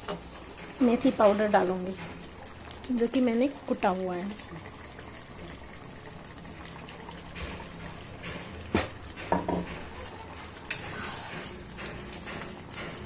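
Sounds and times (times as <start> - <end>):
spoon stirring in metal pan: 8.3 - 13.0.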